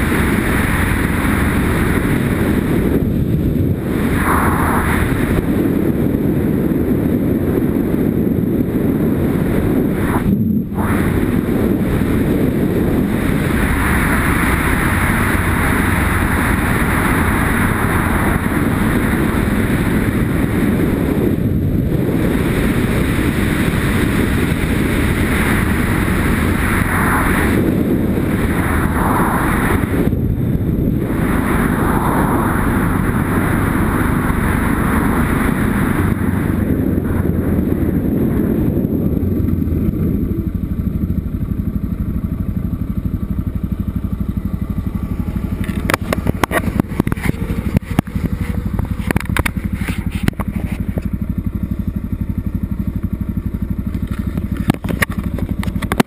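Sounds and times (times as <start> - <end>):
motorcycle engine running: 0.0 - 56.0
wind noise: 0.0 - 56.0
tyres on gravel: 45.0 - 51.3.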